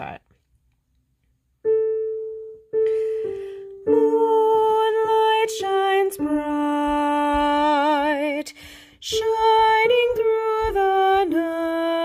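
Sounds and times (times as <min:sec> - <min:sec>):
piano single notes: 0:01.6 - 0:08.3.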